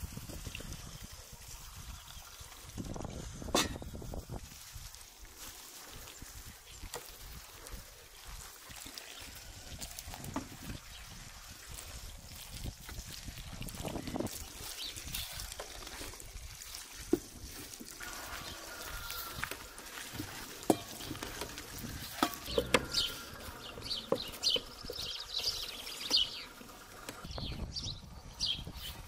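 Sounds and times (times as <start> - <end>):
water trickling onto flour: 0.0 - 27.3
hands mixing dough: 0.6 - 27.3
knocks against metal bowl: 3.6 - 3.8
birds chirping: 20.6 - 29.0.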